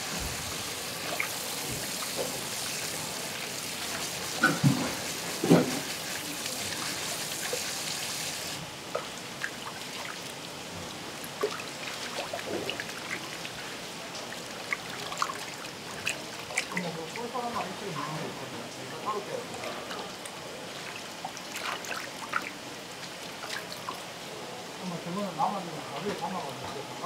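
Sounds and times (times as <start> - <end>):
hands sloshing and rubbing fish: 0.0 - 8.6, 9.3 - 18.4, 19.6 - 24.2
tap water running into steel bowl: 0.0 - 10.3
sharp water splashes: 11.2 - 18.2, 19.5 - 24.2.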